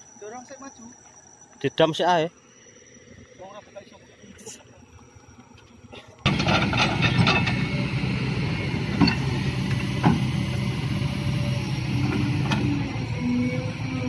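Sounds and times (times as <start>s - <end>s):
excavator diesel engine under load: 6.3s - 14.0s.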